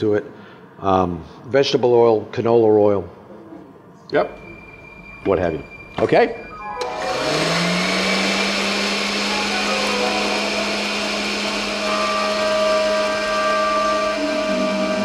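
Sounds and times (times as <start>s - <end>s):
blender motor running: 6.8s - 15.0s.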